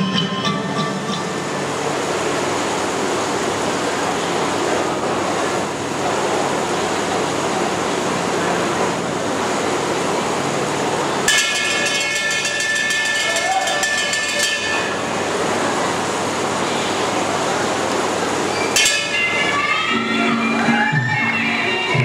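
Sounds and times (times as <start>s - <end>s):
crowd hubbub: 0.0s - 22.0s
boxing ring bell ringing: 11.3s - 15.1s.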